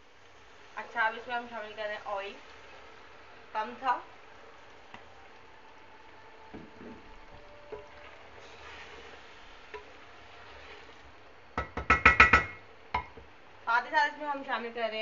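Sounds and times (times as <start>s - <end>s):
food sizzling in oil: 0.0s - 15.0s
wooden spoon scraping a pot: 7.8s - 11.1s.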